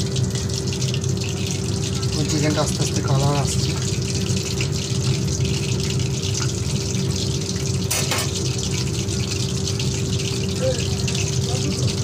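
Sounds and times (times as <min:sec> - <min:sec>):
oil sizzling and bubbling: 0:00.0 - 0:12.0.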